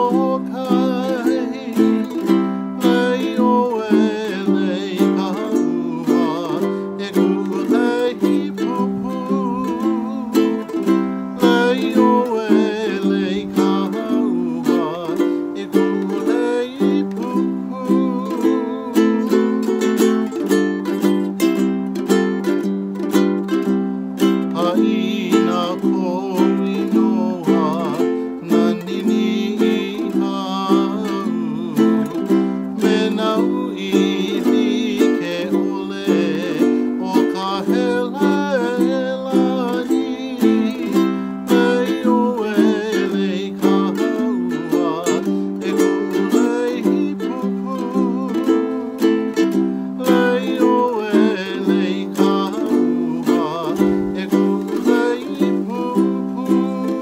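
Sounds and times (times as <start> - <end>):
man singing with vibrato: 0.0 - 57.0
strummed ukulele: 0.0 - 57.0.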